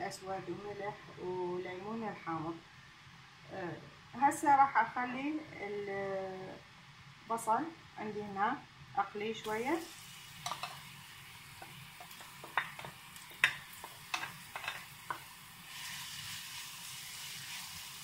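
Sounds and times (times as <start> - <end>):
onion sizzling in hot oil: 9.4 - 18.0.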